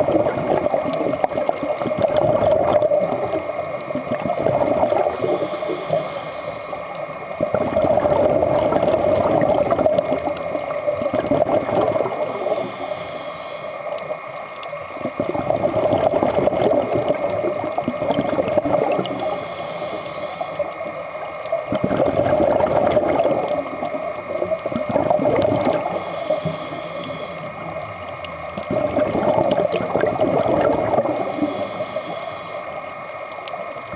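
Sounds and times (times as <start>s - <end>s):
bubbling exhalation: 0.0s - 3.3s, 4.0s - 5.4s, 7.4s - 10.3s, 11.0s - 12.3s, 15.1s - 19.1s, 21.7s - 23.7s, 24.6s - 26.0s, 28.3s - 31.3s
regulator inhalation hiss: 5.0s - 7.4s, 12.0s - 14.4s, 18.9s - 21.3s, 25.8s - 27.8s, 31.0s - 33.4s.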